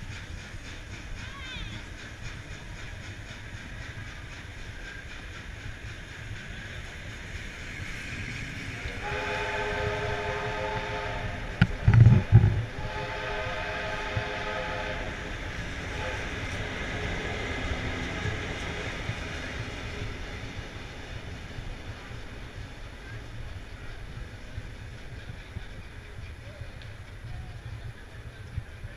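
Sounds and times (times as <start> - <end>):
train carriages rumbling past: 0.0 - 28.9
multi-tone train whistle: 8.8 - 18.6.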